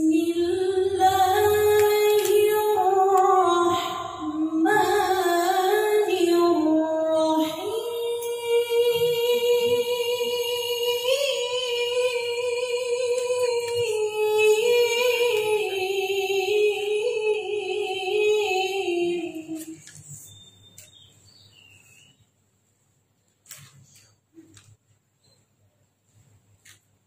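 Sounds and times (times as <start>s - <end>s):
woman reciting melodically: 0.0s - 20.6s.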